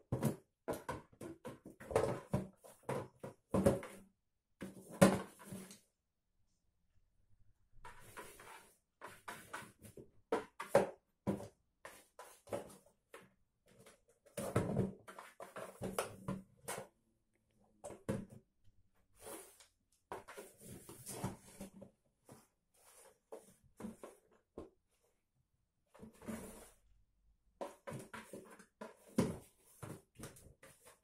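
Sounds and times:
box knocking and scraping on floor: 0:00.0 - 0:04.0, 0:04.6 - 0:05.8.

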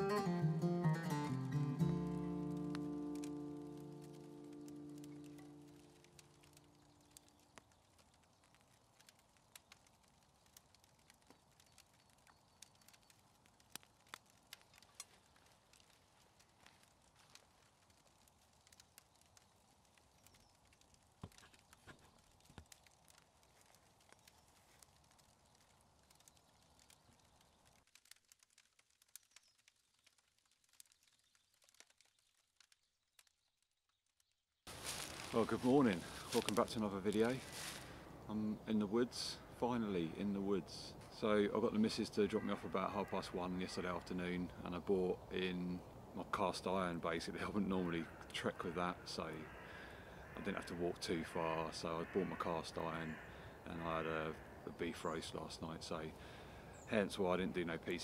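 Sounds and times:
campfire crackling: 0:00.0 - 0:58.0
sharp pops of burning wood: 0:00.8 - 0:33.4, 0:34.7 - 0:58.0
wrapping crinkling: 0:02.1 - 0:33.5, 0:34.7 - 0:38.2.

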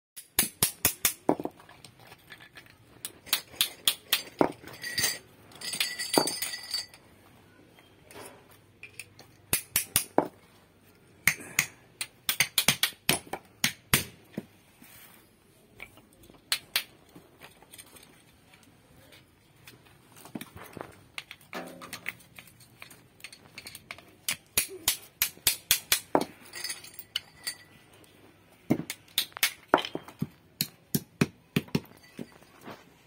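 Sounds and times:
metallic clicks and knocks: 0:21.1 - 0:27.7.

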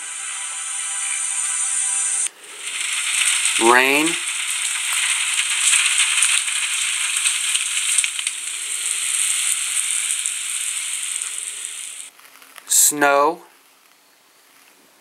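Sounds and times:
rain hiss through phone speaker: 0:00.0 - 0:14.7.

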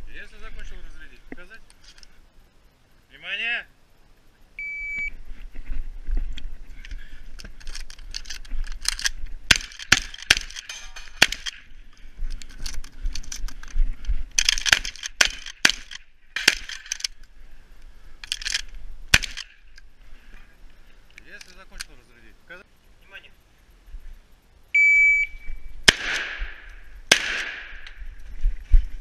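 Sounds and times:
shot timer beep: 0:04.6 - 0:05.1, 0:24.8 - 0:25.5
shells loaded by hand: 0:07.3 - 0:17.3, 0:18.2 - 0:19.9
shotgun shots: 0:09.5 - 0:10.6, 0:11.2 - 0:11.6, 0:14.6 - 0:16.8, 0:19.1 - 0:19.4, 0:25.8 - 0:27.8.

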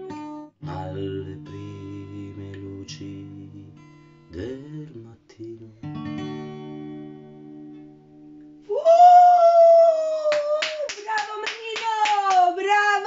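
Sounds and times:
acoustic guitar chord ringing: 0:00.0 - 0:08.6
person cheering: 0:08.7 - 0:13.0
hand clapping: 0:10.3 - 0:12.6.

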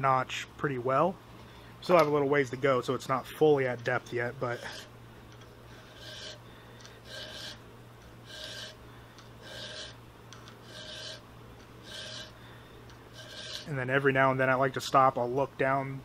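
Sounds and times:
file rasping on steel: 0:04.4 - 0:04.9, 0:05.7 - 0:06.4, 0:07.0 - 0:07.6, 0:08.2 - 0:08.8, 0:09.4 - 0:10.0, 0:10.6 - 0:11.2, 0:11.8 - 0:12.4, 0:13.1 - 0:13.7.

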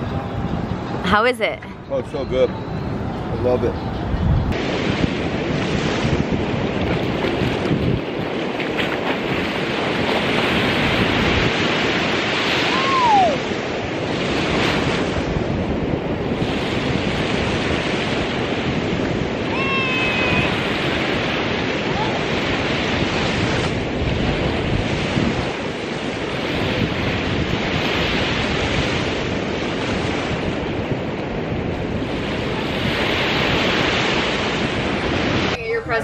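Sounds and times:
waves breaking on sandy shore: 0:00.0 - 0:36.0
wind on microphone: 0:00.0 - 0:36.0
high-pitched cries: 0:19.5 - 0:20.5.

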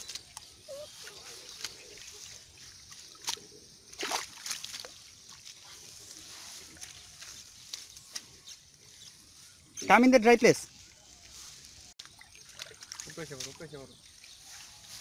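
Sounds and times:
water sloshing in a hand net: 0:00.9 - 0:05.7, 0:12.0 - 0:14.3.

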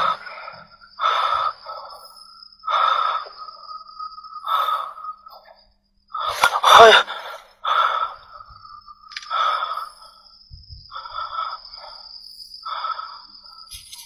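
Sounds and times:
person breathing heavily: 0:00.0 - 0:03.4, 0:06.2 - 0:13.5
thin steady high tone: 0:00.0 - 0:14.0.

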